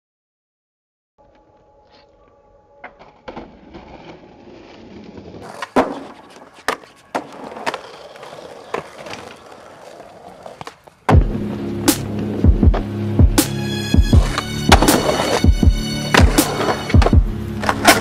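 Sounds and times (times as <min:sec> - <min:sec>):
skateboard wheels rolling on concrete: 0:01.2 - 0:18.0
skateboard clacking on ground: 0:02.8 - 0:11.3, 0:14.2 - 0:18.0.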